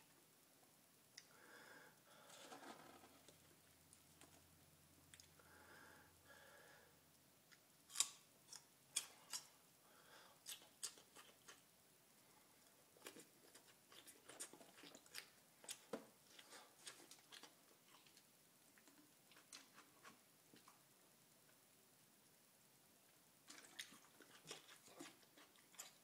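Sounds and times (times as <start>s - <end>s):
garlic cloves being chewed: 7.5s - 9.6s, 10.4s - 11.7s, 13.0s - 20.8s, 23.4s - 26.0s.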